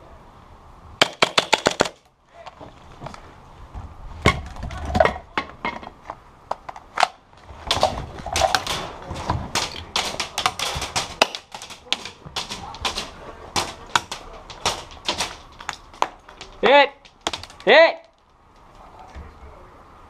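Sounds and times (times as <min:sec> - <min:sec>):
gun and magazine handling knocks: 0:06.5 - 0:17.7.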